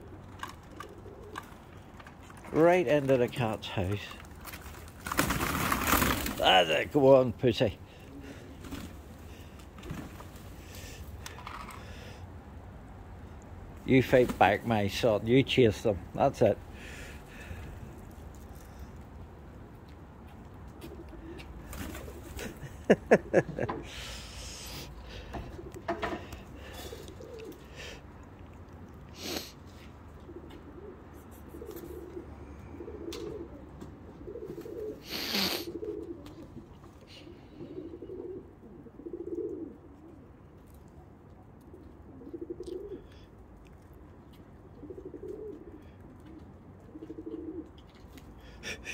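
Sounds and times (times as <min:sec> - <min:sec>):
pigeons cooing: 0:00.0 - 0:02.5, 0:07.8 - 0:12.2, 0:20.7 - 0:28.4, 0:29.0 - 0:40.6, 0:41.2 - 0:43.4, 0:44.3 - 0:48.9.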